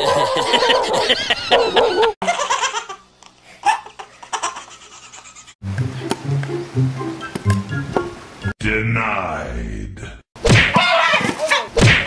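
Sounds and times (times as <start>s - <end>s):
laughter: 0.0s - 2.6s
music with low notes: 5.6s - 8.5s.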